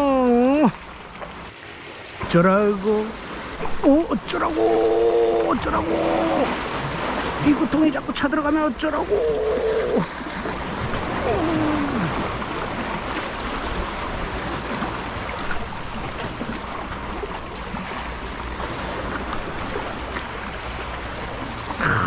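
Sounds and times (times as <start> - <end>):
sea surf washing against rocks: 0.0 - 22.0
man humming: 9.1 - 10.1, 11.2 - 12.2, 21.8 - 22.0.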